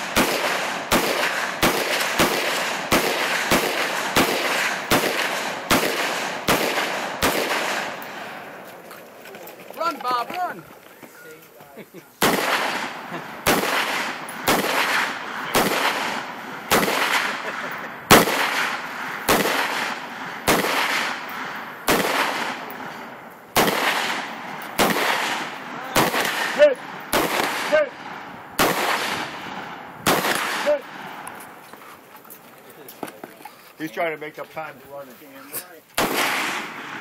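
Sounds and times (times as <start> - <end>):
rifle shots with echo: 0.0 - 8.6, 12.2 - 31.3, 36.0 - 37.0.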